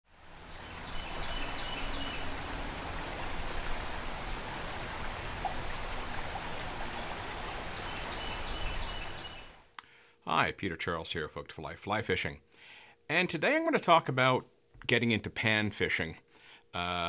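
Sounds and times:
stream rippling over rocks: 0:00.1 - 0:09.6.

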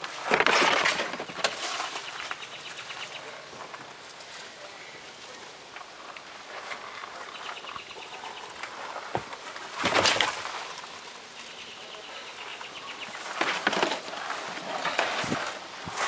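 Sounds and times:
birds chirping: 0:01.6 - 0:15.5
plastic trash can clattering: 0:13.2 - 0:16.0.

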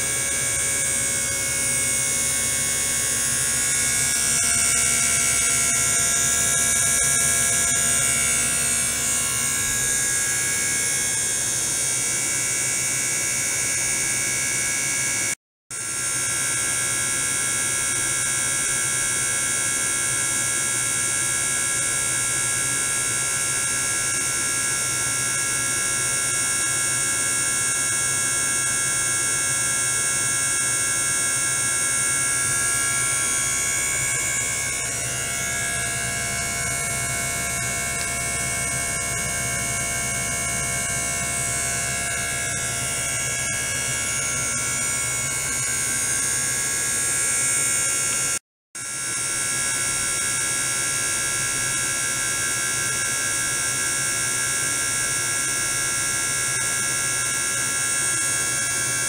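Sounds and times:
electric pump humming: 0:00.0 - 0:59.0
high whining tones: 0:32.0 - 0:47.1.

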